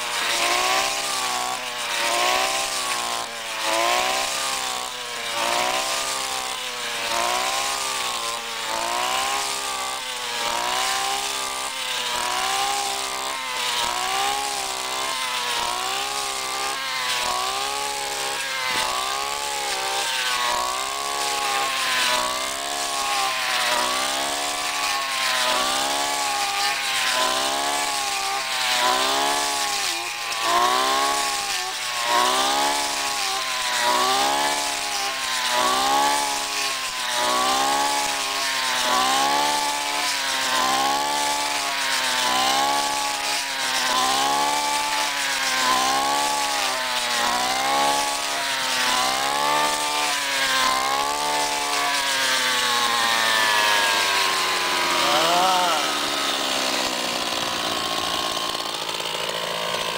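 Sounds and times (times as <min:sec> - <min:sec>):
brush cutter engine cutting: 0:00.0 - 0:59.9.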